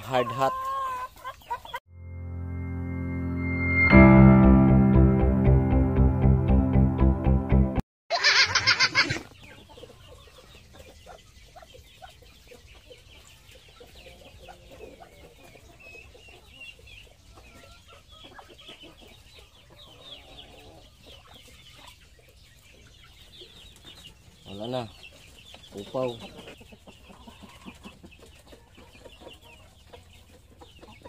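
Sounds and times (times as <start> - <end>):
child laughing: 8.1 - 9.3
hens clucking softly: 8.2 - 31.0.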